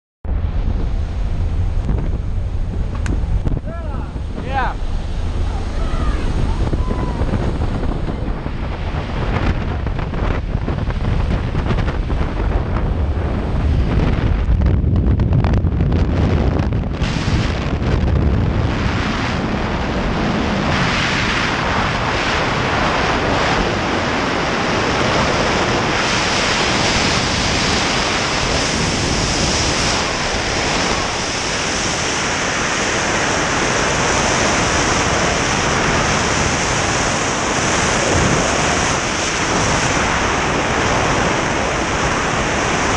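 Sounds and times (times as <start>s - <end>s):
plane engines droning: 0.3s - 14.6s
freefall wind rushing: 0.3s - 42.9s.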